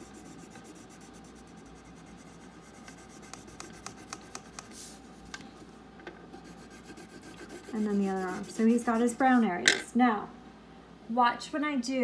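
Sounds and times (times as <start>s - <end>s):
colouring tool rubbing on paper: 0.0s - 5.0s, 6.4s - 9.5s.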